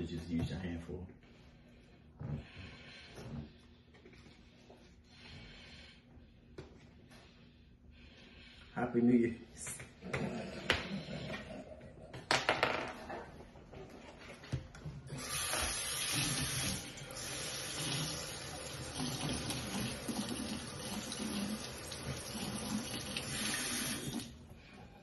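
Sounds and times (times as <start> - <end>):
faucet running into sink: 15.1 - 24.4.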